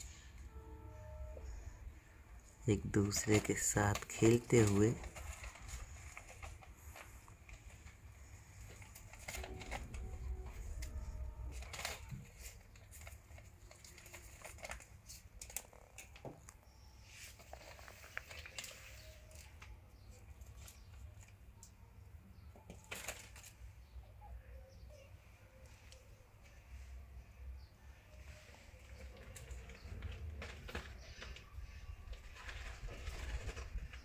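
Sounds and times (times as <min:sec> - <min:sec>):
kittens rustling and scratching: 0:02.9 - 0:21.7, 0:22.5 - 0:24.0, 0:27.9 - 0:34.0
low steady rumble: 0:05.1 - 0:13.4.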